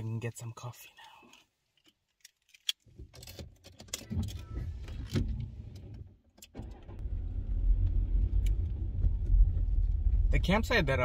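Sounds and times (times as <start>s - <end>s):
car engine rumble: 2.8s - 11.0s.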